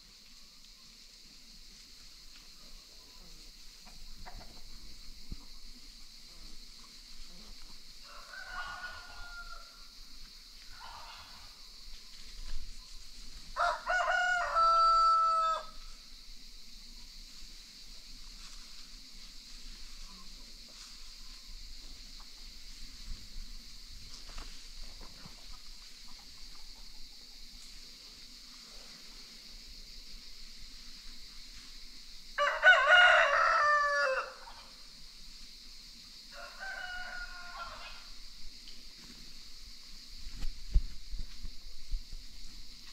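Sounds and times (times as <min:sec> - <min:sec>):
steady high hiss: 0:00.0 - 0:42.9
rooster crowing: 0:08.0 - 0:09.9, 0:13.6 - 0:15.9, 0:32.4 - 0:34.6, 0:36.3 - 0:38.2.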